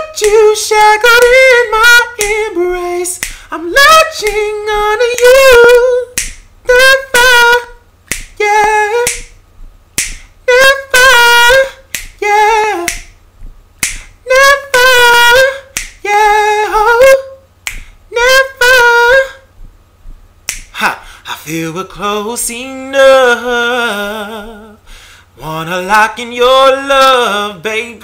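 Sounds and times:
man singing a cappella: 0.0s - 9.4s, 10.0s - 13.2s, 13.8s - 19.7s, 20.5s - 28.0s
finger snaps: 0.0s - 21.0s.

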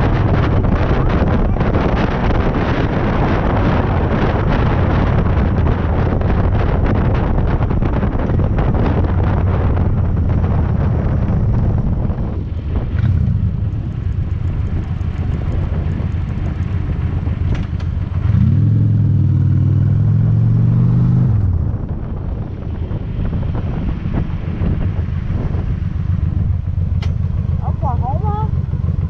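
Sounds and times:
motorcycle engine running: 0.0s - 29.0s
wind noise: 0.0s - 29.0s.

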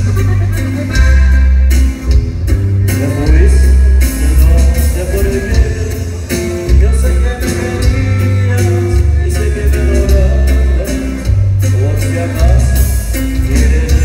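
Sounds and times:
heavy bass: 0.0s - 14.0s
steady drum beat: 0.0s - 14.0s.

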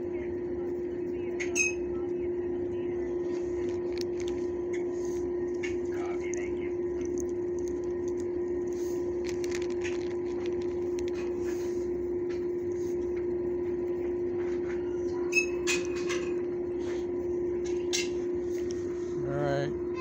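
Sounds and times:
steady mechanical hum: 0.0s - 20.0s
plastic bag rustling: 3.2s - 6.0s, 7.1s - 14.3s.

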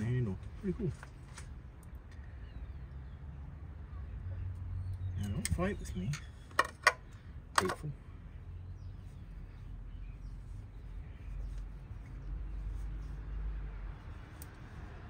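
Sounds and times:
faint bird chirps: 2.1s - 13.4s.

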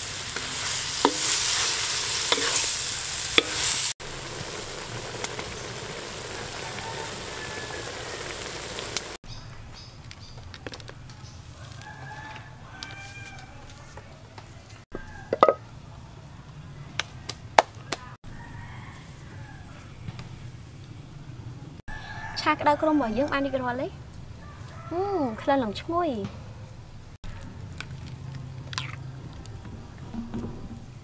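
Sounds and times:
food sizzling in a wok: 0.0s - 9.2s
outdoor ambience: 0.0s - 31.0s.

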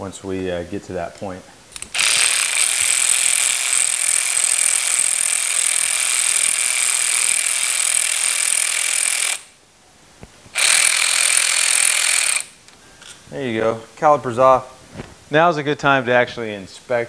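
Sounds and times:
power wrench buzzing: 1.8s - 9.6s, 10.5s - 12.6s.

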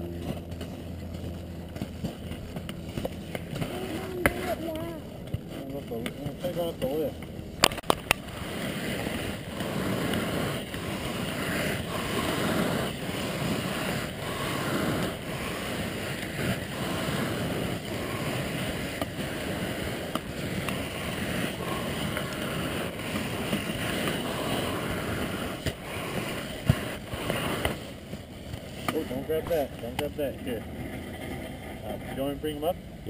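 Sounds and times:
skis sliding: 0.1s - 32.3s
wind on microphone: 7.8s - 28.9s.

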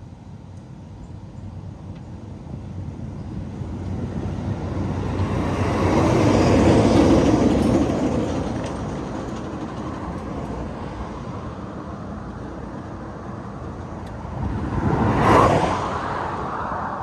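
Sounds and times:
vehicle passing on highway: 1.6s - 17.0s.

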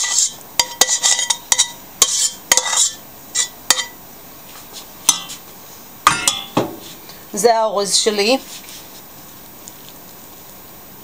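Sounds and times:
pot ringing: 0.6s - 4.0s, 5.1s - 5.3s, 6.1s - 6.6s
metal spoon knocking on pot: 5.1s - 5.3s, 6.1s - 6.8s.

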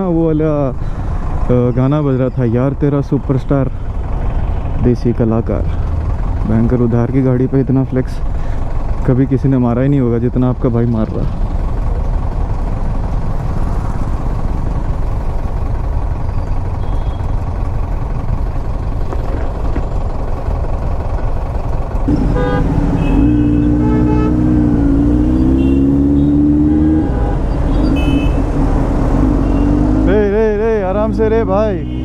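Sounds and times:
motorcycle engine: 10.8s - 32.0s
horn toots: 22.1s - 28.5s.

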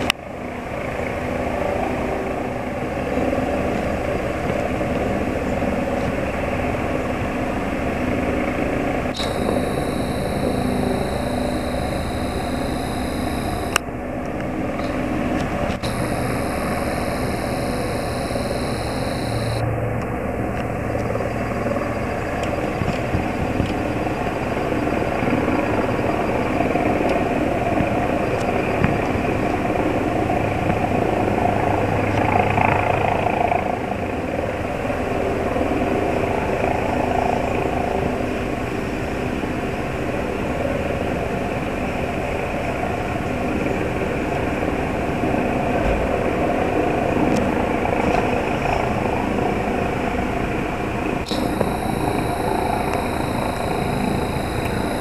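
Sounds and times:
helicopter rotors and turbine drone: 8.6s - 28.2s, 46.6s - 55.0s
sharp click: 9.2s - 13.8s, 15.7s - 19.6s, 51.2s - 55.0s
thin high whine: 9.2s - 13.8s, 15.7s - 19.6s, 51.2s - 55.0s.

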